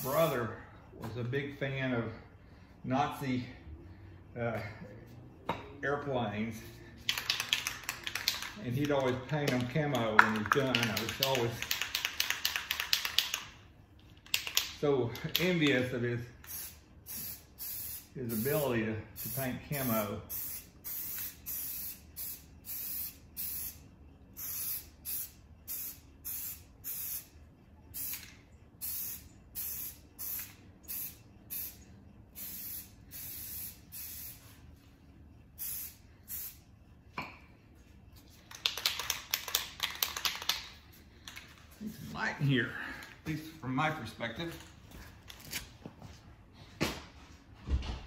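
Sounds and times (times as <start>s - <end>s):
spray can ball rattling: 7.0s - 13.6s, 14.2s - 14.8s, 16.4s - 18.6s, 19.2s - 23.8s, 24.4s - 27.3s, 27.9s - 31.8s, 32.4s - 34.6s, 35.6s - 36.6s, 38.2s - 41.7s
spray paint hissing bursts: 16.4s - 34.7s, 35.6s - 36.6s.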